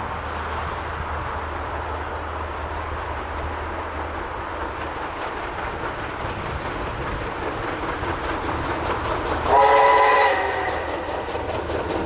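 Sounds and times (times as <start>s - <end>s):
steam locomotive rumble: 0.0s - 12.0s
steam whistle chord: 9.5s - 10.9s.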